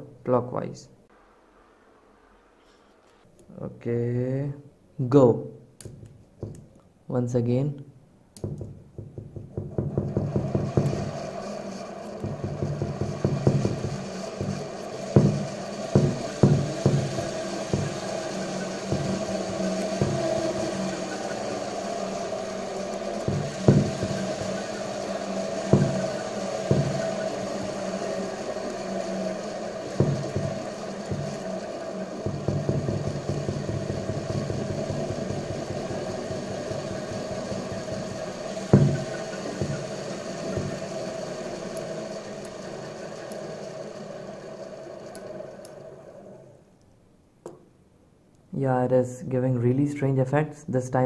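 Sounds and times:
electric motor hum: 8.4s - 46.8s.

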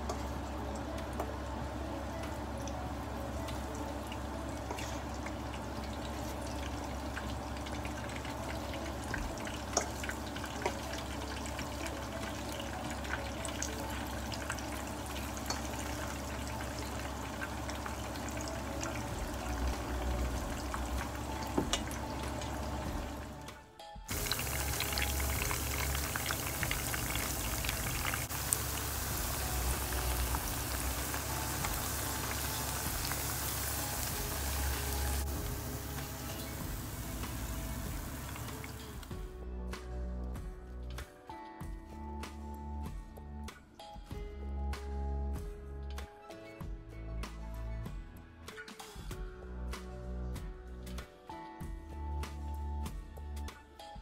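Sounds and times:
background music: 0.0s - 54.0s
fritters sizzling in oil: 3.5s - 23.4s, 24.1s - 39.1s.

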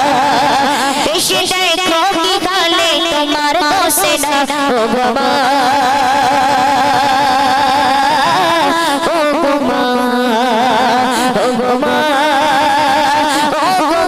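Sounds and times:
woman singing with vibrato: 0.0s - 14.0s.

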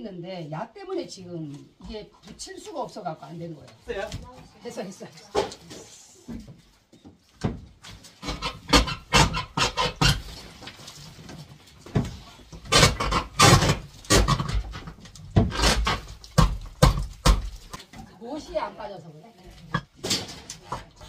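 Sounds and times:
hammer scraping wooden boards: 8.0s - 10.8s, 11.9s - 17.7s.

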